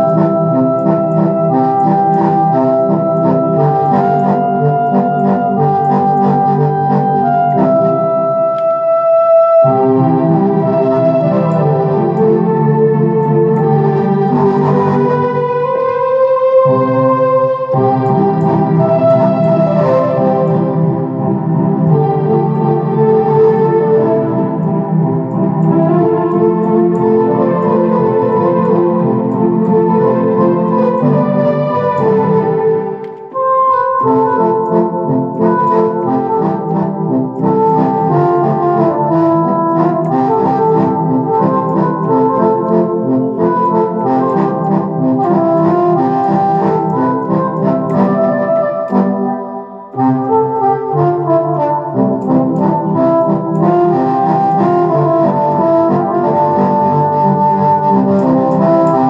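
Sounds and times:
electronic keyboard melody and chords: 0.0s - 59.0s.

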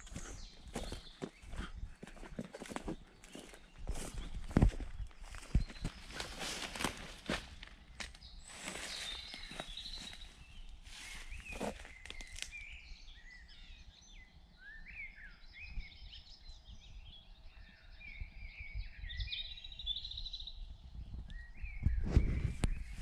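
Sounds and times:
crackles of steps through undergrowth: 0.0s - 12.7s
birds singing and chirping: 0.0s - 23.0s.

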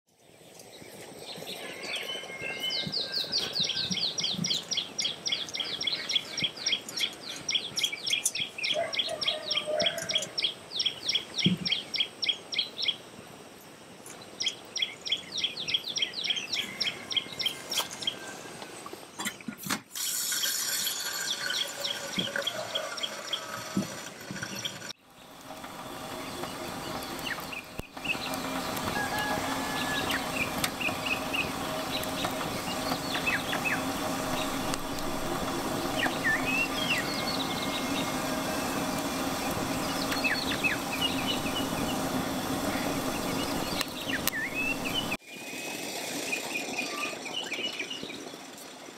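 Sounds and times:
wood fire crackling: 25.1s - 45.2s
songbird chirping fast: 26.2s - 45.2s.

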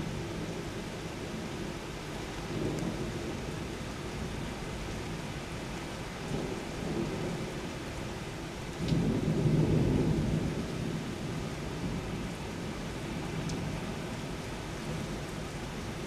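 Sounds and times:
heavy rain: 0.0s - 16.0s
thunder rumbling: 8.8s - 15.2s.

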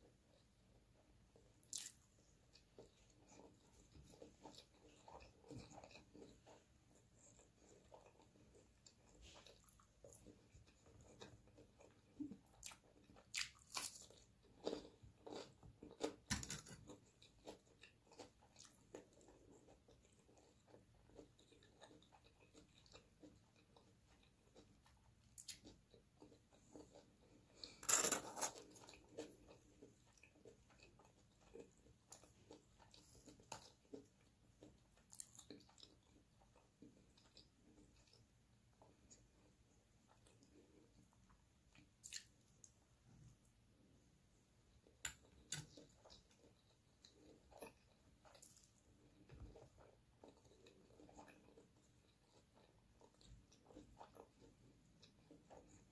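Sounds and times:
crunchy bites and chewing: 1.6s - 2.6s, 11.9s - 19.3s.

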